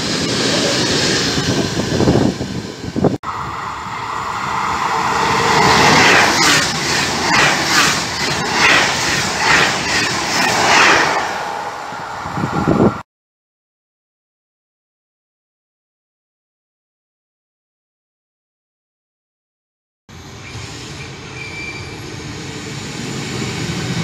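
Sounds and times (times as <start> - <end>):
freight train rolling past: 0.0 - 13.0, 20.1 - 24.0
high-speed train rushing past: 0.0 - 13.1, 20.1 - 24.0.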